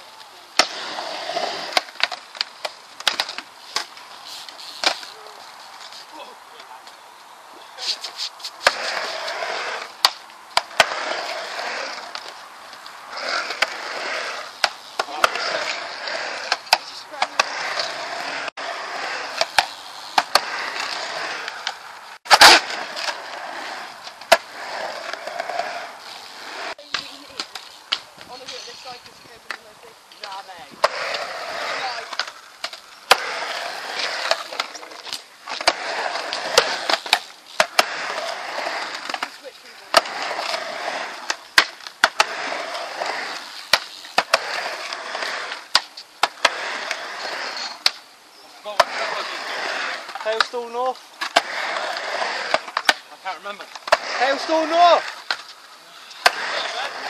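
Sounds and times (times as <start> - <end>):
skateboard wheels rolling on concrete: 0.0 - 57.0
skateboard hitting coping: 13.1 - 28.0, 30.8 - 48.0, 48.7 - 55.5, 56.1 - 57.0.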